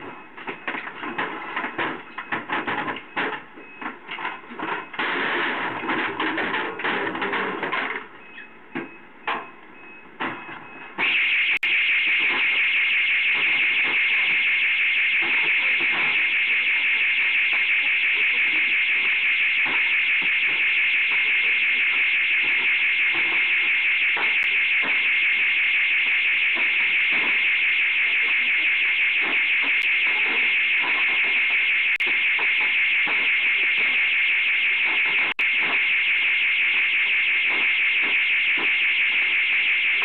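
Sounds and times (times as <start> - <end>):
intruder alarm tone: 0.0 - 40.0.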